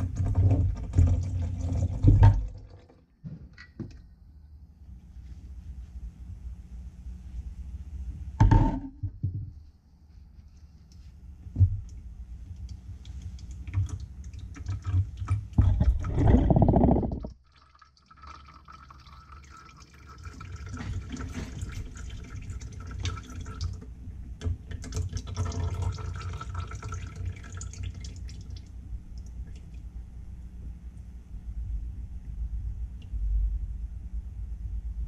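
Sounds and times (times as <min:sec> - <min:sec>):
liquid pouring: 0:00.0 - 0:03.0, 0:13.1 - 0:23.8, 0:24.6 - 0:29.8
oil gurgling and dripping: 0:00.0 - 0:03.2, 0:11.6 - 0:29.9.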